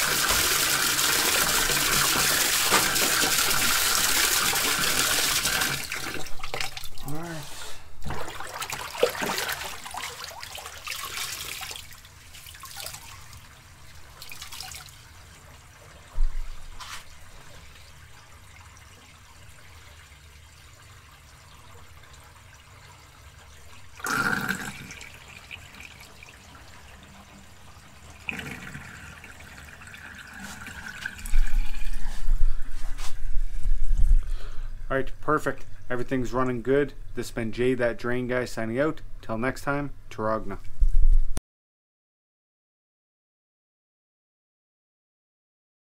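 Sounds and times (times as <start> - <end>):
drain sucking gurgle with whistle: 0.0 - 7.1, 17.2 - 34.1
water draining from tub: 0.0 - 7.4, 8.0 - 32.9.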